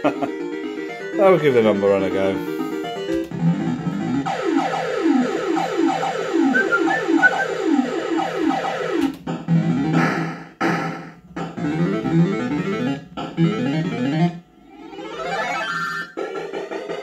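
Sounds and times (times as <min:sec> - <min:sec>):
fruit machine electronic tunes: 0:03.2 - 0:10.6, 0:11.3 - 0:16.2.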